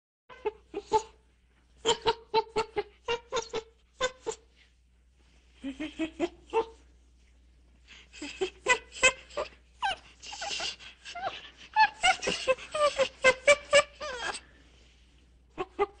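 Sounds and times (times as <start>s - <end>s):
monkeys squealing and chattering: 8.2s - 14.4s
monkeys screeching: 9.8s - 14.4s.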